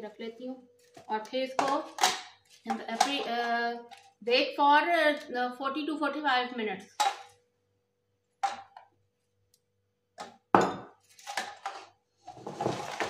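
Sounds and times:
rustles and scrapes: 11.0s - 13.0s.

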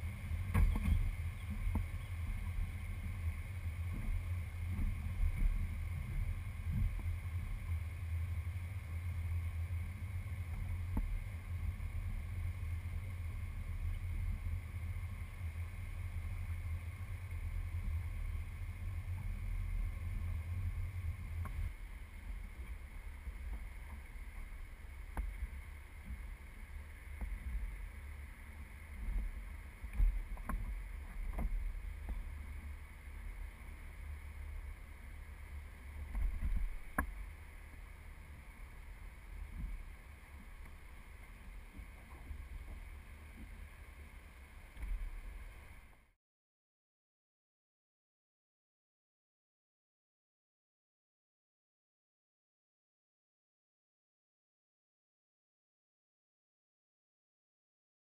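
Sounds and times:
wind buffeting microphone: 0.0s - 28.2s
boat engine rumble: 0.0s - 46.2s.

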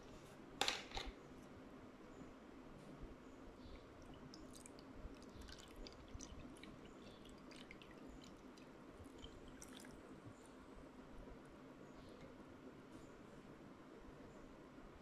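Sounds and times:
drink pouring into plastic cup: 4.3s - 10.0s.

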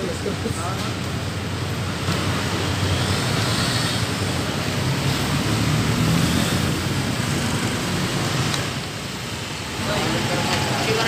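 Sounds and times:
street traffic noise: 0.0s - 11.0s
vehicle engine running close by: 1.6s - 9.2s.

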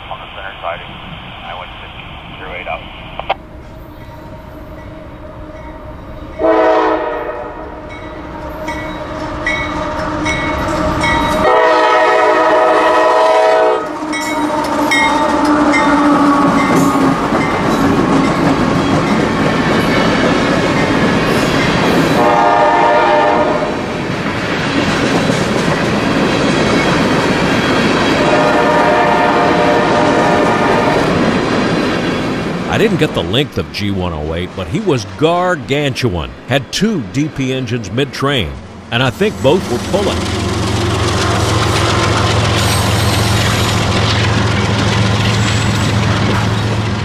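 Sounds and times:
train rumble and clatter: 0.0s - 47.0s
train horn blasts: 6.4s - 17.1s, 22.1s - 23.9s, 28.2s - 31.1s
crossing bell dinging: 7.8s - 11.5s, 14.1s - 19.4s.

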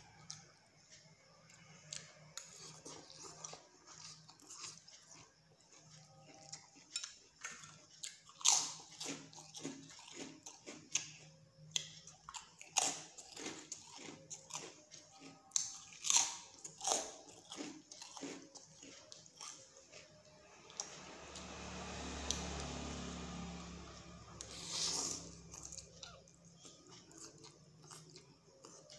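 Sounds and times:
wet chewing and biting: 1.9s - 20.2s.

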